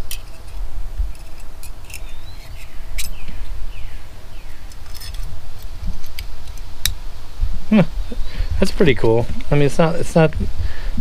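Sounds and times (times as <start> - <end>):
metal multi-tool clicking: 0.0 - 3.2
birds chirping: 0.0 - 11.0.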